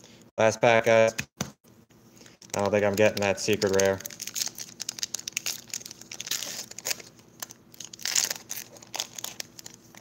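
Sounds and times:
foil pack crinkling and tearing: 0:02.2 - 0:10.0.

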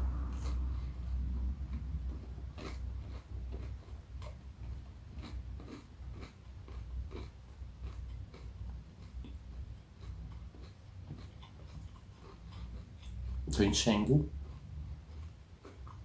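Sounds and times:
person chewing food: 0:00.0 - 0:13.7, 0:14.3 - 0:16.0
low steady hum: 0:00.0 - 0:16.0.

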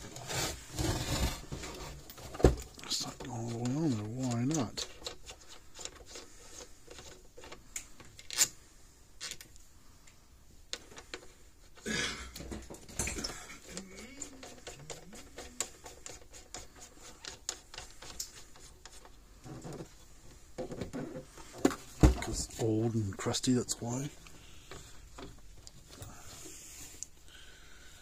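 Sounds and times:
plastic knobs clicking and scraping: 0:01.6 - 0:08.5, 0:13.6 - 0:26.1.

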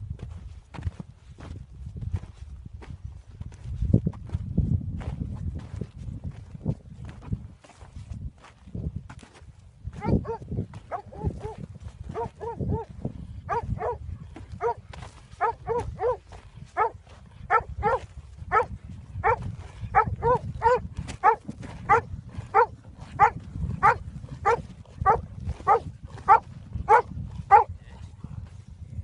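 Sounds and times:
dog barking: 0:10.0 - 0:12.9, 0:13.5 - 0:14.0, 0:14.6 - 0:14.8, 0:15.4 - 0:16.2, 0:16.8 - 0:27.7.

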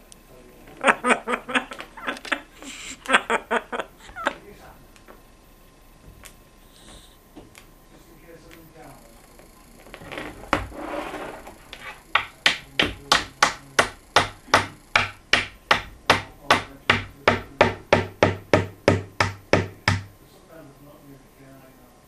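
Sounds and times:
sharp knocks on wood: 0:12.2 - 0:20.1.

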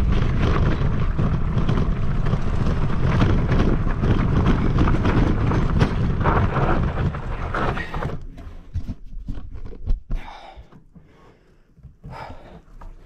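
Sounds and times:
bike rattling: 0:00.0 - 0:10.1
bike rolling over dirt trail: 0:00.0 - 0:10.1
scattered clicks and knocks: 0:00.0 - 0:10.2.

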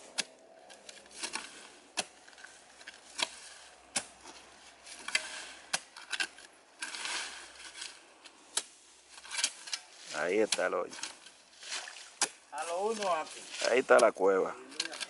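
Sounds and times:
spade chopping into soil: 0:00.0 - 0:07.9
earth scraping: 0:00.0 - 0:15.0.

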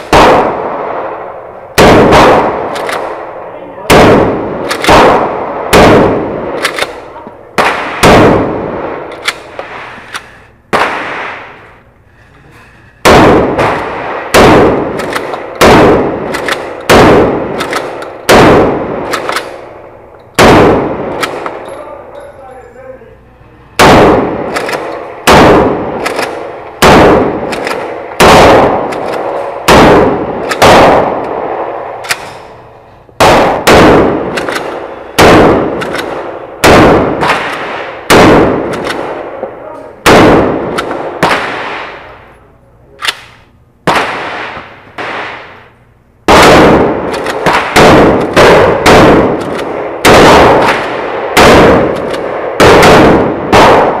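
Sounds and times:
shotgun blasts with ringing echo: 0:00.0 - 0:11.8, 0:13.0 - 0:22.0, 0:23.8 - 0:42.2, 0:43.0 - 0:45.7, 0:46.3 - 0:54.0.

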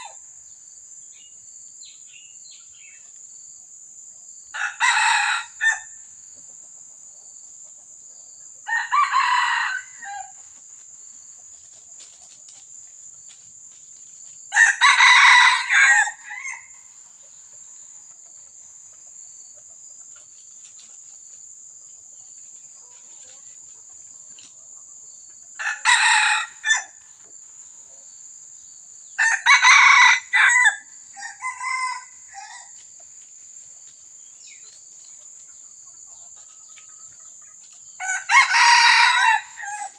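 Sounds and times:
rooster crowing: 0:04.6 - 0:06.0, 0:08.6 - 0:10.4, 0:14.5 - 0:16.9, 0:25.6 - 0:27.0, 0:29.2 - 0:32.8, 0:38.0 - 0:39.9.

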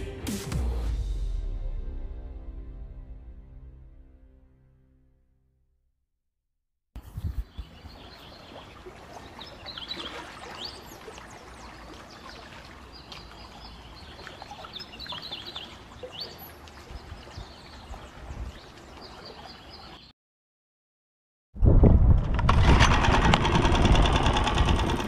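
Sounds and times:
birds chirping: 0:07.0 - 0:20.1.

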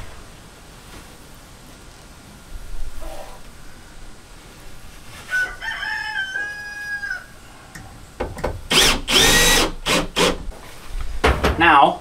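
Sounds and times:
cordless drill driving screws: 0:08.4 - 0:10.4.

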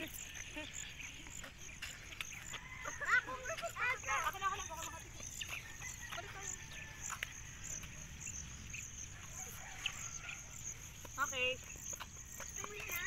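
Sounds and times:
insects chirping in pulsing trill: 0:00.0 - 0:13.0
distant children's voices: 0:01.7 - 0:07.4, 0:12.4 - 0:13.0.

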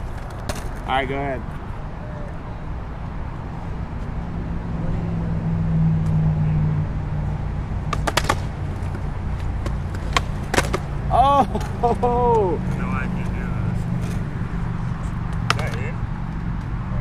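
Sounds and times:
skateboard clacks on concrete: 0:07.9 - 0:11.0, 0:15.3 - 0:15.9.

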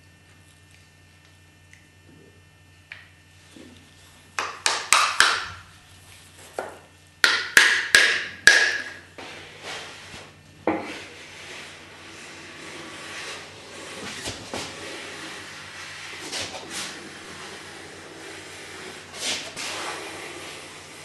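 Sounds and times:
hammer tapping: 0:07.2 - 0:09.0.

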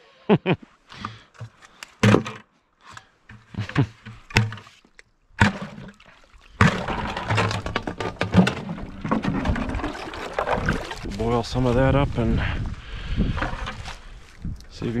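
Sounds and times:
water splashing: 0:05.3 - 0:11.4
water gurgling into bucket: 0:05.4 - 0:11.2
plastic bucket knocks: 0:06.6 - 0:11.0.

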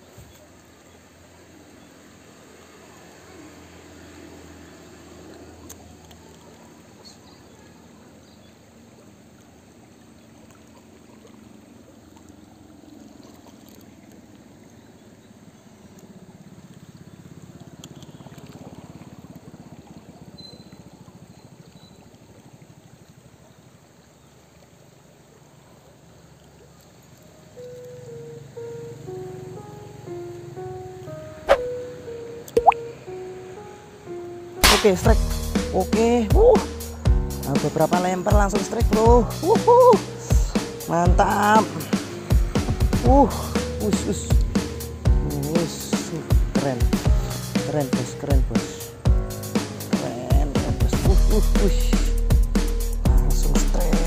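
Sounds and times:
river current rushing: 0:31.1 - 0:51.2.

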